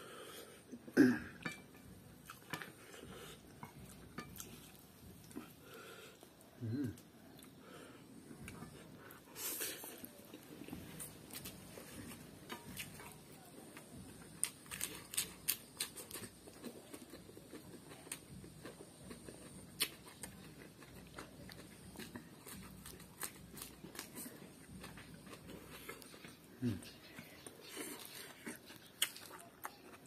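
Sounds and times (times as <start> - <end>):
crunchy chewing of lettuce: 8.4 - 30.0.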